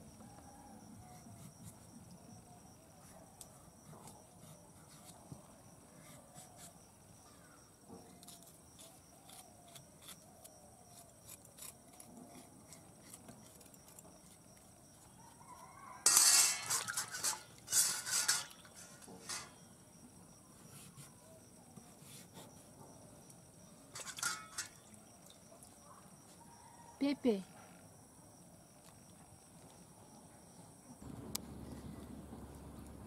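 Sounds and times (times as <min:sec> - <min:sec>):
spoon scraping a steel bowl: 0:16.0 - 0:19.6, 0:23.9 - 0:24.8.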